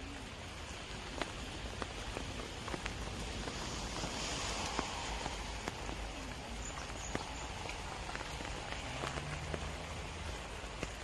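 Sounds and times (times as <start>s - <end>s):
rain falling on leaves and water: 0.0s - 11.0s.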